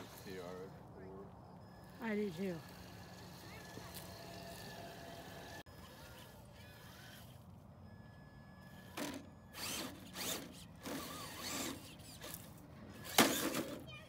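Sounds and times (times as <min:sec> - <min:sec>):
electric motor whirring: 0:01.6 - 0:07.4, 0:08.6 - 0:13.7.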